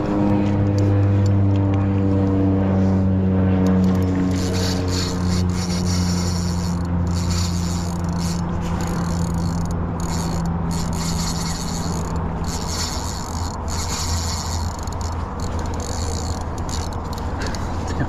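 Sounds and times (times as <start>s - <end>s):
steady low hum: 0.0s - 18.0s
fishing reel mechanical rasp: 3.6s - 17.9s.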